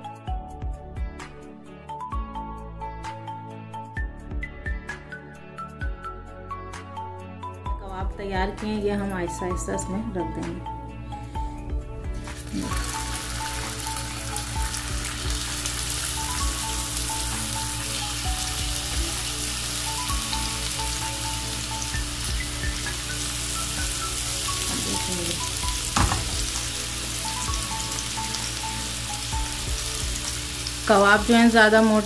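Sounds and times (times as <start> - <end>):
oil sizzling in frying pan: 12.1 - 32.0
sharp knock: 26.0 - 26.4.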